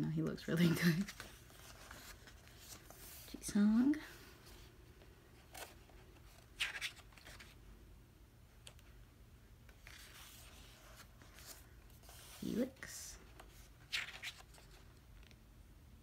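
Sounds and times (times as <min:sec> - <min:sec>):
paper pages rustling: 0:00.6 - 0:03.4, 0:04.4 - 0:07.6, 0:09.7 - 0:15.3.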